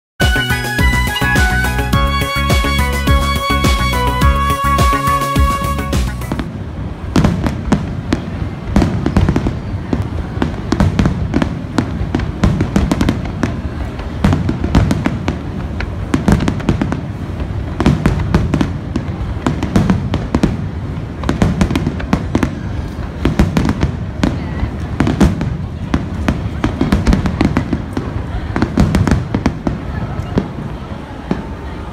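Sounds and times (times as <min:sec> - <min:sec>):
firework bangs and crackles: 0:00.2 - 0:31.9
low booming of firework bursts: 0:06.3 - 0:31.6.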